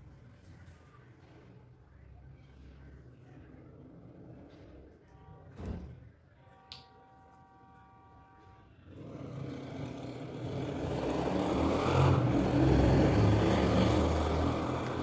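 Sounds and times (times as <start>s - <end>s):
motor vehicle passing by: 8.8s - 15.0s.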